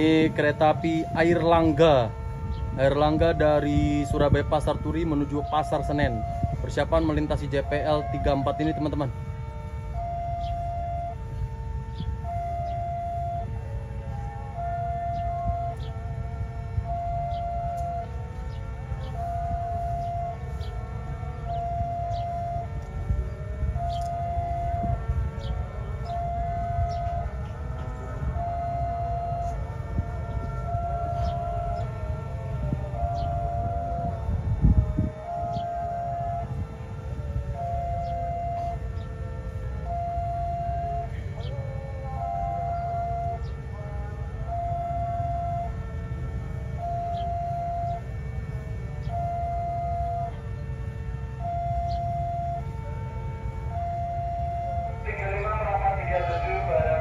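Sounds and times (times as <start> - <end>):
level crossing alarm tone: 0.0 - 57.0
wind rumble on microphone: 0.0 - 57.0.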